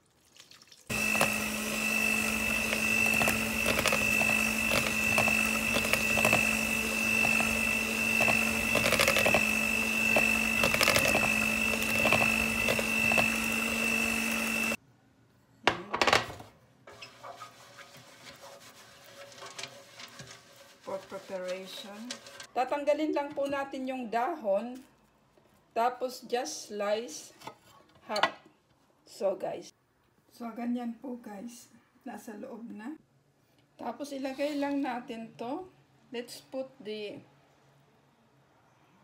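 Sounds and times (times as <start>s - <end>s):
electric mixer whining: 0.9s - 14.8s.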